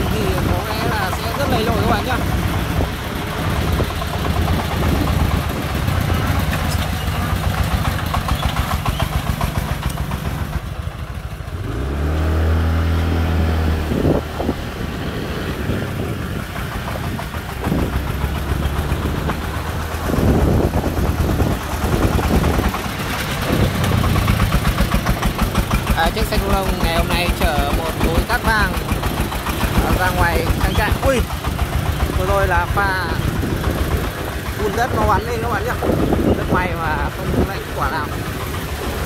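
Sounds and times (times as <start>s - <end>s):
diesel engine chugging: 0.0s - 39.0s
engine revving up: 11.4s - 39.0s.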